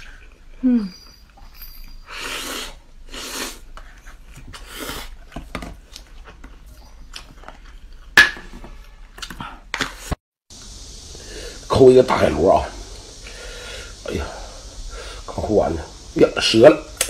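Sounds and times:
loud slurping of noodles: 2.1 - 3.7, 4.6 - 5.2.

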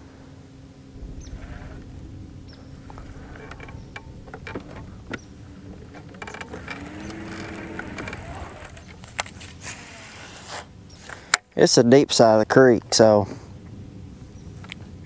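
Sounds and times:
low hum: 0.0 - 11.4
fishing reel whirring and clicking: 5.9 - 10.7.

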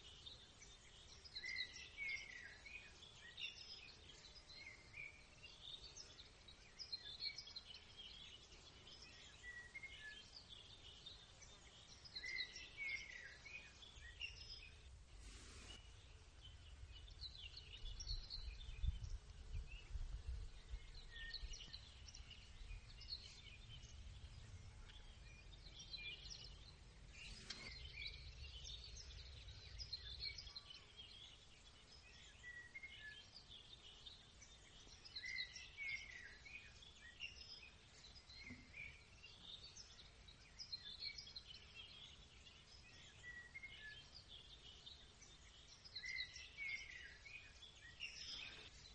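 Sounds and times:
songbirds chirping and singing: 0.0 - 48.9.

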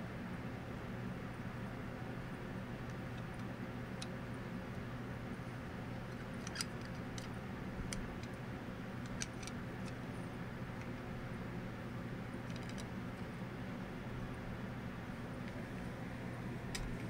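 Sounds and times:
room tone hiss and hum: 0.0 - 17.0
small clicks of metal toy handled: 6.1 - 7.3, 9.0 - 10.0, 12.5 - 12.9.

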